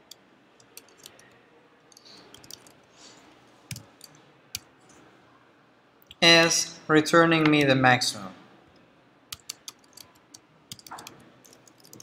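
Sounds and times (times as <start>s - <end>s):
keyboard keystrokes: 9.3s - 12.0s.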